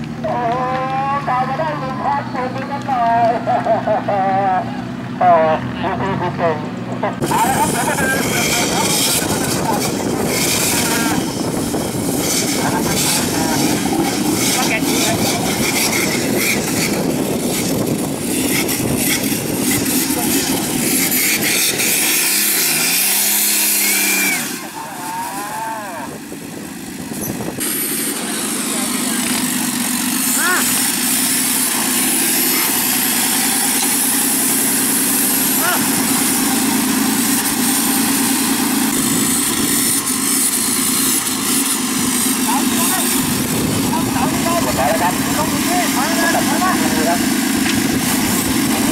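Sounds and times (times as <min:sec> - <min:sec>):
buggy engine running hard: 0:00.0 - 0:48.9.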